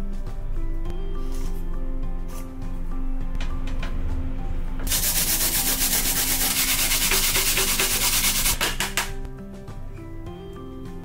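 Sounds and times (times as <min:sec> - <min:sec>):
radish grated on metal grater: 0:04.9 - 0:09.0.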